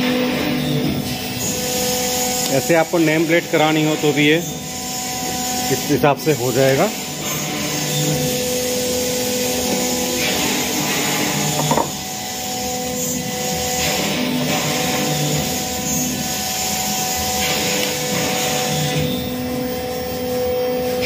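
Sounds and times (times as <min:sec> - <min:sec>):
router machinery humming and whining: 0:00.0 - 0:21.0
short knock: 0:11.6 - 0:12.0.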